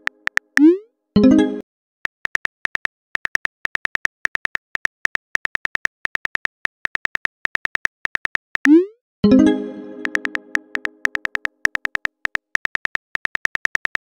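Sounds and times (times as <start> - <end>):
phone keyboard clicks: 10.0 - 14.0.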